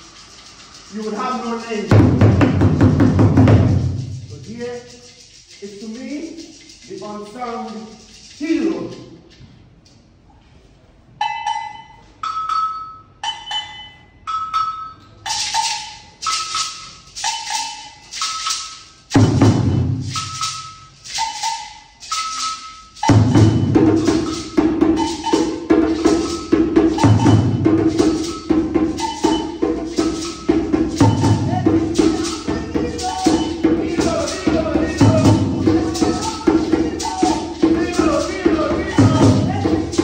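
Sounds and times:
maracas shaking: 0:00.0 - 0:10.2, 0:14.5 - 0:40.0
djembe drumming: 0:01.8 - 0:05.2, 0:19.1 - 0:20.6, 0:23.0 - 0:40.0
percussion knocks: 0:01.9 - 0:04.5, 0:19.1 - 0:20.7, 0:23.0 - 0:40.0.

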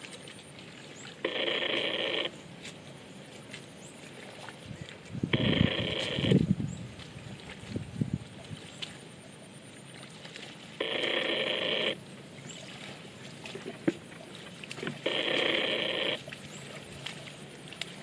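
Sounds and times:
telephone ringing: 0:01.2 - 0:02.3, 0:05.4 - 0:06.4, 0:10.8 - 0:12.0, 0:15.0 - 0:16.2.

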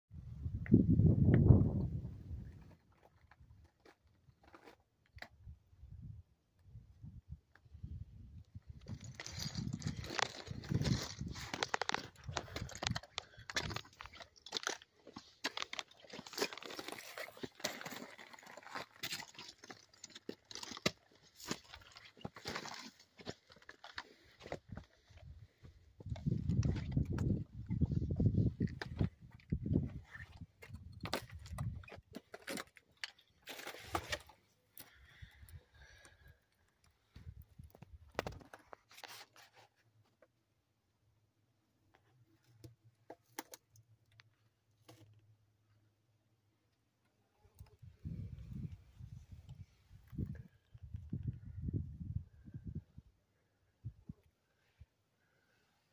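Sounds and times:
footsteps on gravelly rock: 0:08.7 - 0:36.2
footsteps crunching on gravel: 0:09.0 - 0:19.6
small stones clicking: 0:09.0 - 0:21.0.

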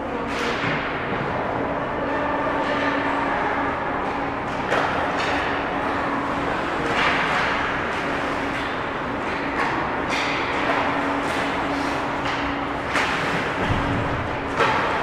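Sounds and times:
ice hockey game noise: 0:00.0 - 0:15.0.

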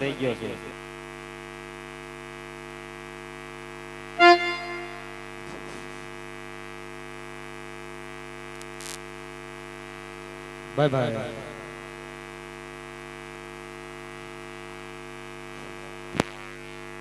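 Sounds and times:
loudspeaker electrical hum: 0:04.1 - 0:06.0, 0:10.6 - 0:12.2
short loud musical note: 0:04.2 - 0:05.2.

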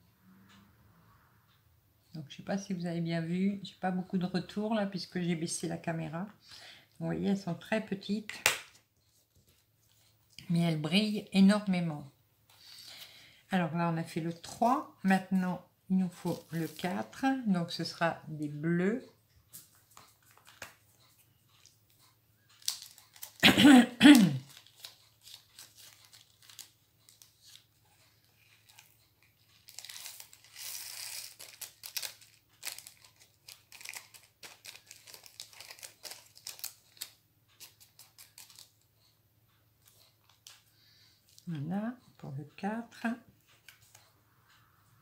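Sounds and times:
plastic bag crinkling: 0:16.2 - 0:17.1, 0:22.6 - 0:23.5, 0:24.1 - 0:27.7, 0:28.5 - 0:38.8.

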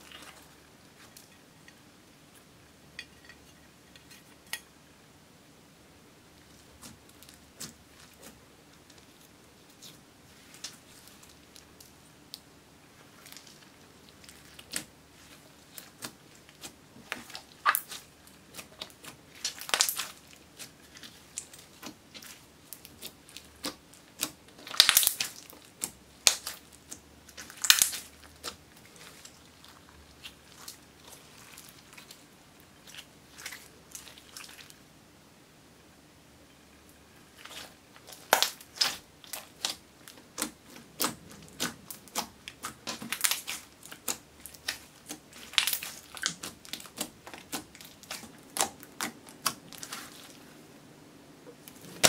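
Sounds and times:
slime clicking and crackling: 0:13.1 - 0:32.2, 0:37.4 - 0:50.4
slime popping: 0:37.4 - 0:50.3.

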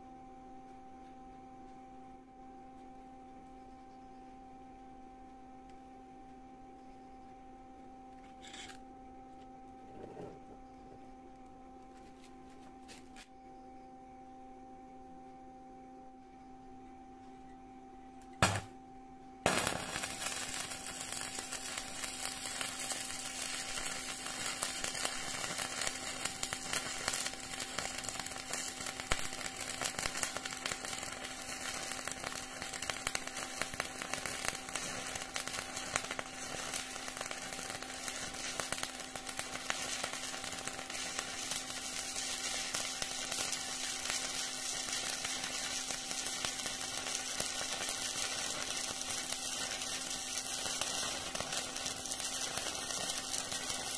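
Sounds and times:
faint low hum: 0:00.0 - 0:20.4
welding arc crackling: 0:18.4 - 0:18.7, 0:19.5 - 0:53.9.

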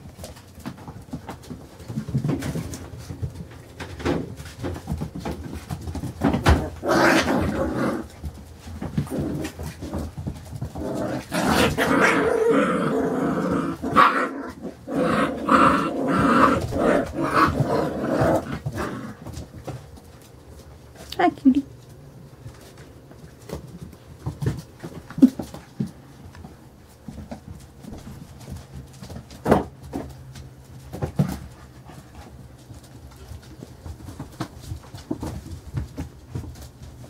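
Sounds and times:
puppies growling: 0:00.0 - 0:21.0
puppies barking: 0:11.2 - 0:19.2.

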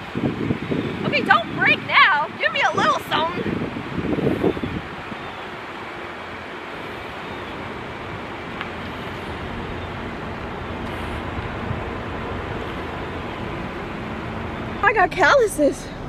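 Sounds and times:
vehicle rumble and hiss: 0:00.0 - 0:16.0.

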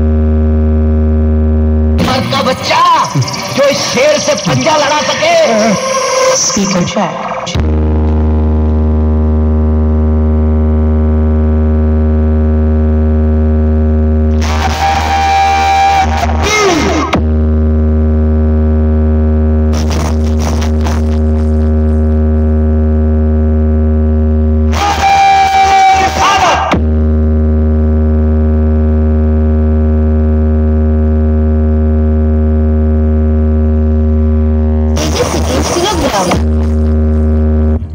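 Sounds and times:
loud low buzzy speaker tone: 0:00.0 - 0:37.9
busy sound with sliding pitches: 0:02.0 - 0:10.5.

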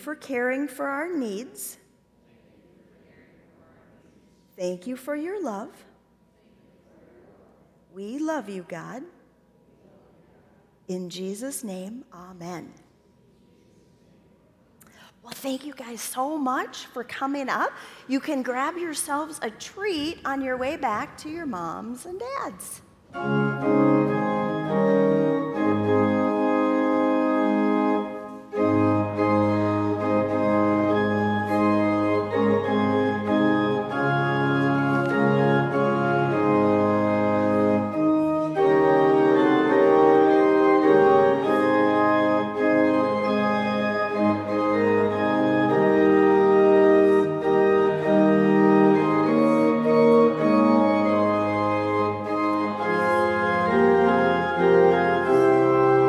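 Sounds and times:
organ playing sustained chords: 0:23.0 - 0:56.0.

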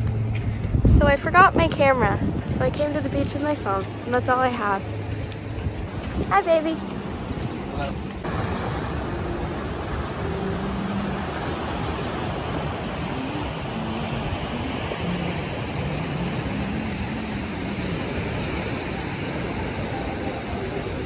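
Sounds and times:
ocean surf over rocks: 0:06.0 - 0:21.0.

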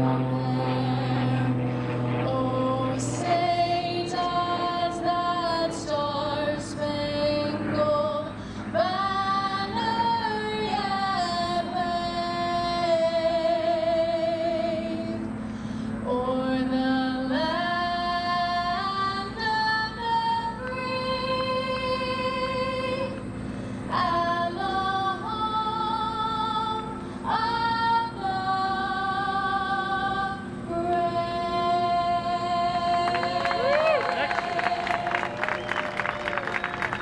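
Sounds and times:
woman singing over loudspeakers: 0:23.9 - 0:35.3.

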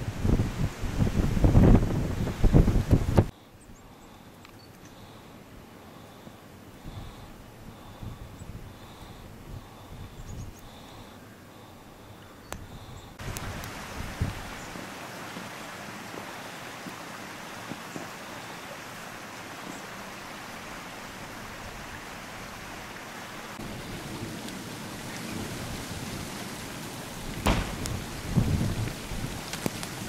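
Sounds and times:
wind thumping microphone: 0:00.0 - 0:03.3, 0:27.2 - 0:30.0
small stream flowing: 0:11.0 - 0:30.0.

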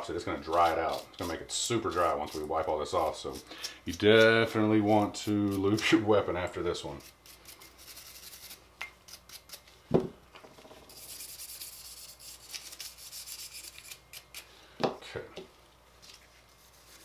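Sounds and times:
wire brush scrubbing metal: 0:00.4 - 0:06.0, 0:10.9 - 0:14.3.

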